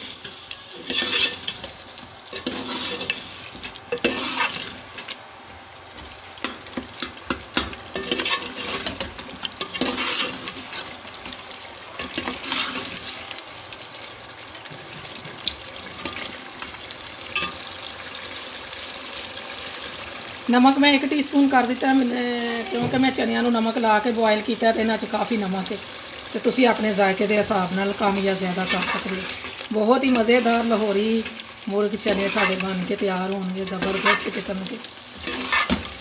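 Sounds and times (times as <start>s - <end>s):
ladle scraping metal pot: 0.0s - 4.8s, 8.0s - 10.9s, 35.2s - 36.0s
frying sizzle: 0.0s - 36.0s.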